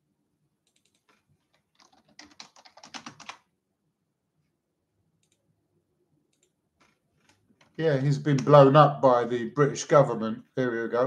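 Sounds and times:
rapid typing on a keyboard: 0.7s - 3.5s.

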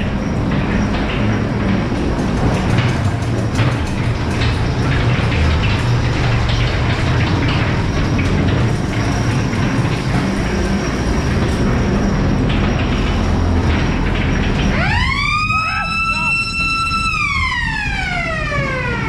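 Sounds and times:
ride car rumbling and rattling: 0.0s - 19.0s
siren-like wail: 14.6s - 19.0s.

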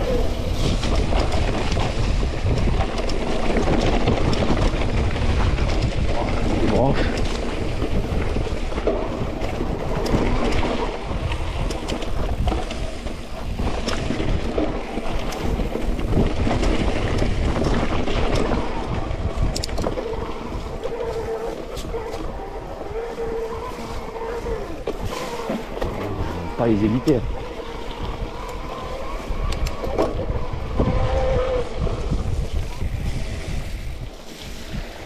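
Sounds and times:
bike rattling and knocking: 0.0s - 20.8s
bike tyres rumbling: 0.0s - 35.0s
wind rushing over microphone: 0.0s - 35.0s.

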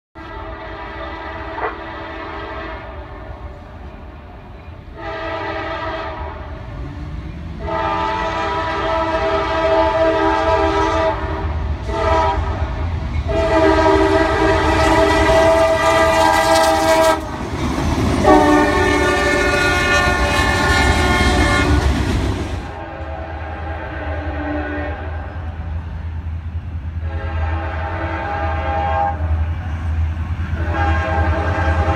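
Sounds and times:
locomotive air horn blasts: 0.2s - 3.4s, 4.9s - 6.9s, 7.5s - 12.7s, 13.3s - 17.3s, 18.2s - 22.0s, 22.7s - 25.6s, 27.0s - 29.5s, 30.5s - 31.9s
low rumble of train: 0.2s - 31.9s.

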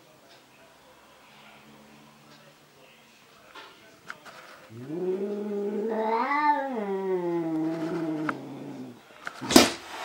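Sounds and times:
cat yowling: 4.7s - 9.0s.

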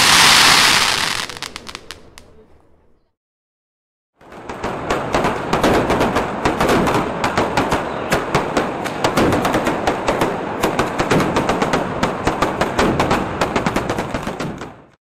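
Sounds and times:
firecracker bangs: 0.0s - 2.4s.

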